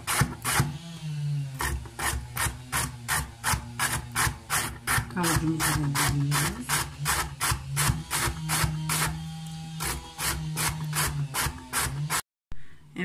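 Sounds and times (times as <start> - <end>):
carrot grated on metal grater: 1.6 - 9.2, 9.8 - 12.2.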